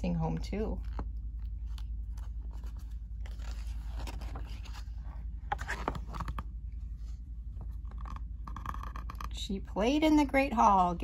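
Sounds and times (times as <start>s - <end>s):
steady low hum: 0.0s - 11.0s
book pages turning: 0.8s - 9.3s.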